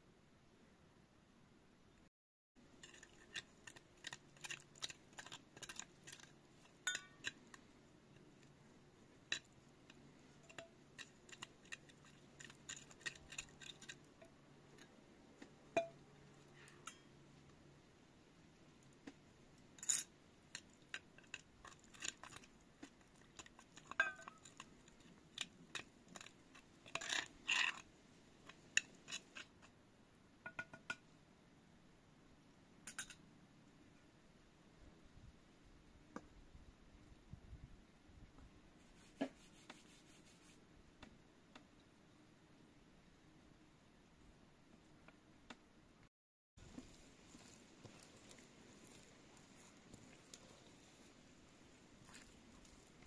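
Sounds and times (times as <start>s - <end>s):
metal cup and bowl clinks: 6.8s - 7.4s, 15.7s - 16.0s, 23.9s - 24.5s.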